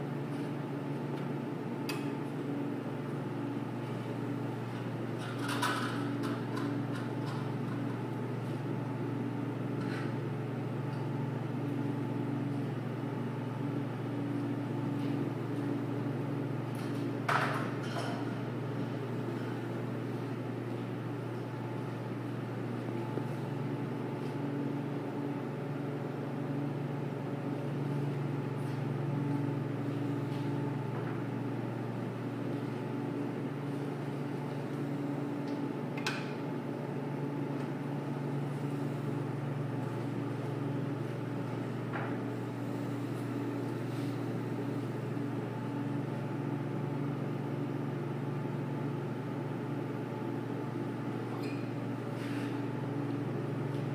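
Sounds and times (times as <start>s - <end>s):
machinery hum: 0.0s - 53.9s.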